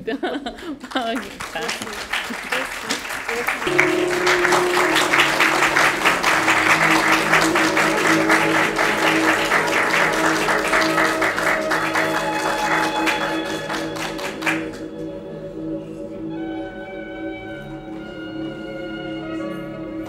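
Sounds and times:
audience applauding: 0.8s - 15.0s
music playing: 2.2s - 20.0s.

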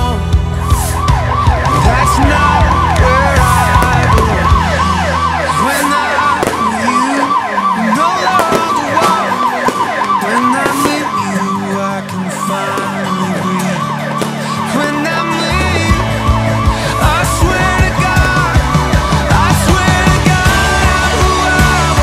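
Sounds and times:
deep bass hum: 0.0s - 5.8s, 15.5s - 22.0s
fast electronic siren-like wail: 0.5s - 22.0s.

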